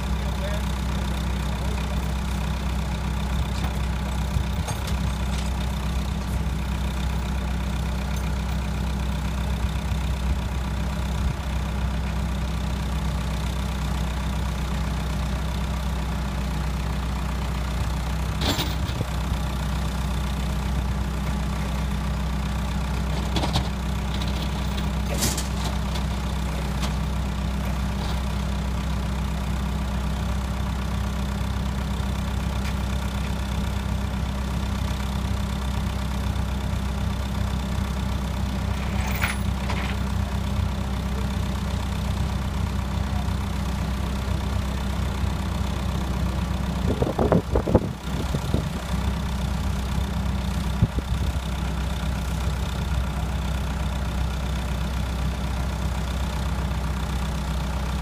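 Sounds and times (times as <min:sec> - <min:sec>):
forklift engine idling: 0:00.0 - 0:58.0
metal clanks: 0:38.8 - 0:40.1.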